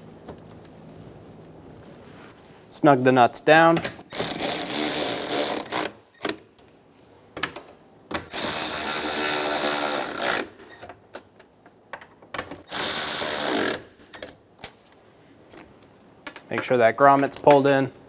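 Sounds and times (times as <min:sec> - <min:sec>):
cordless electric ratchet running: 0:12.7 - 0:13.8.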